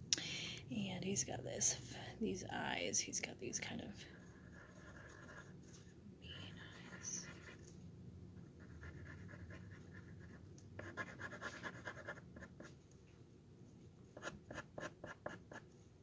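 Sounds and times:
marker scratching on wood: 4.2 - 5.6, 8.6 - 12.7, 14.2 - 15.6.

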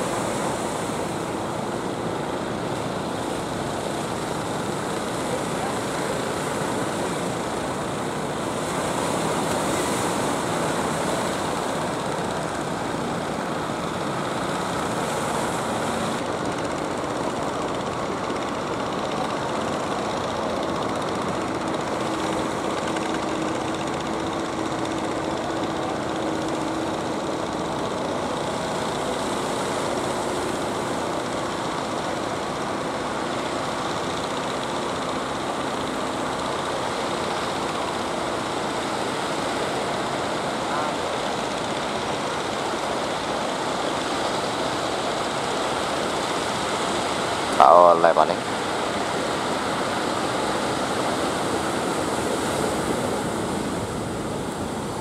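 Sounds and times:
boat engines running: 0.0 - 55.0
surf rushing: 0.0 - 55.0
wind: 0.0 - 55.0.

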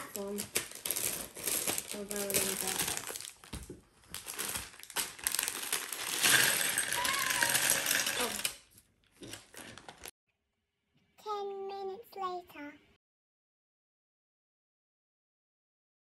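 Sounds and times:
plastic bag crinkling: 0.0 - 8.6, 9.2 - 10.1
plastic bricks clattering on table: 5.3 - 10.1.

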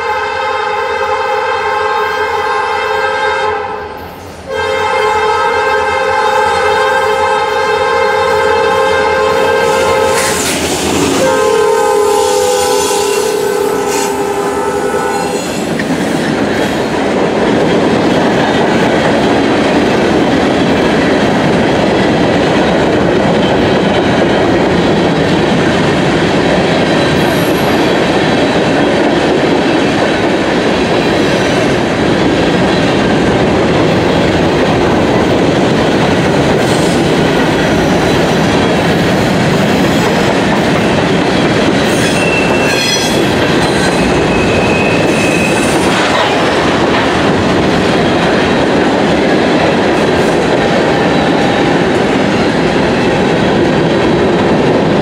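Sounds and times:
locomotive air horn chord: 0.0 - 10.5, 11.2 - 15.6
train wheels rumbling on rails: 0.0 - 55.0.

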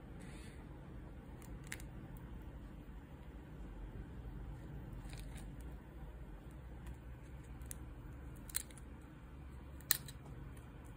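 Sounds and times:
low background hum: 0.0 - 10.9.

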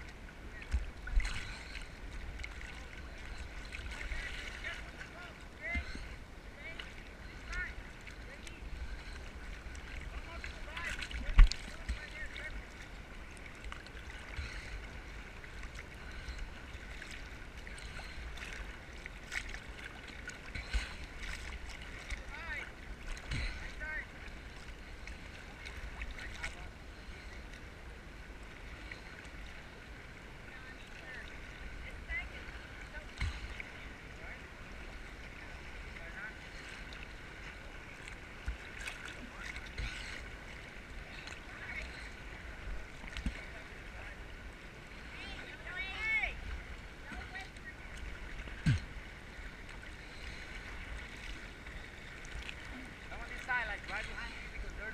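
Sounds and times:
sea water sloshing: 0.0 - 54.9
small water splashes: 0.0 - 54.9
low thumps: 48.5 - 49.0.

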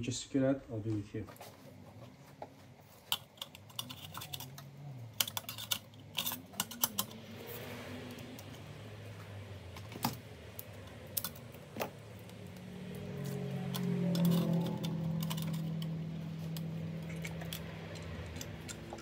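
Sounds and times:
drive caddy and cables clicking: 3.0 - 7.2, 13.6 - 19.0.

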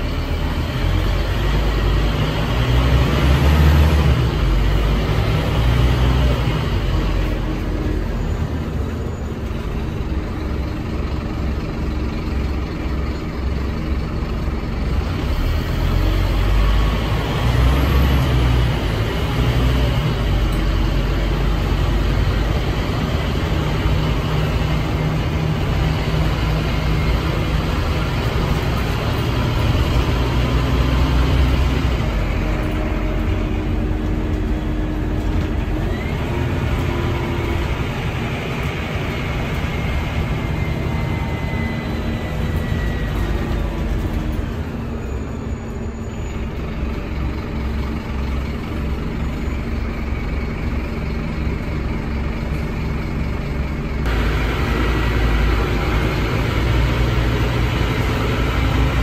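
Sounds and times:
bus engine rumble from inside: 0.0 - 59.0.

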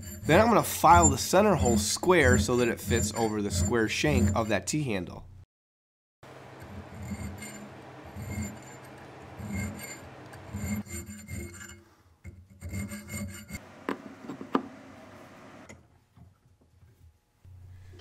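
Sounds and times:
needle file rasping on metal: 0.0 - 4.6, 6.3 - 13.6.

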